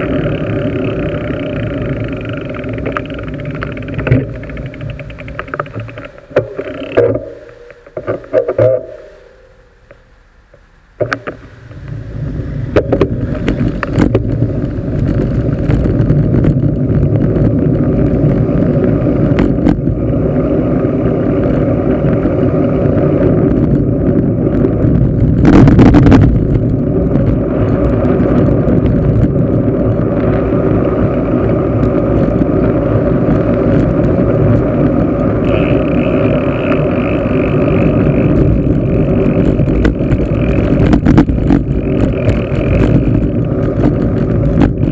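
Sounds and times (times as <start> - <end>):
bicycle tyre and road noise: 0.0 - 44.9
wind buffeting microphone: 11.1 - 44.9.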